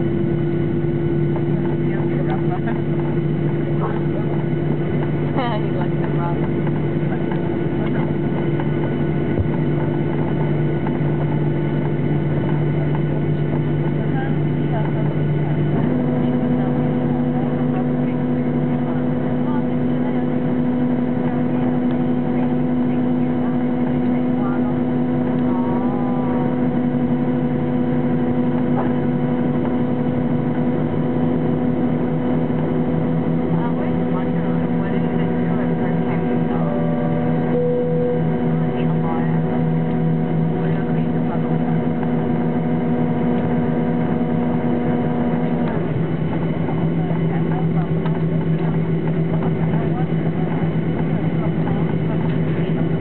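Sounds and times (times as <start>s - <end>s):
jet engine drone in cabin: 0.0s - 53.0s
fixed tones: 15.7s - 47.0s.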